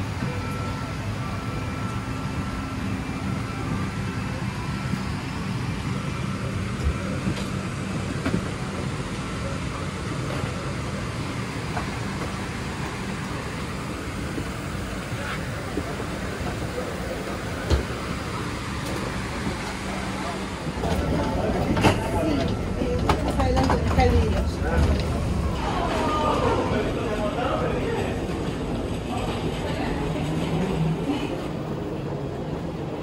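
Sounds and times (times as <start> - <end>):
vehicle rumbling in motion: 0.0 - 33.0.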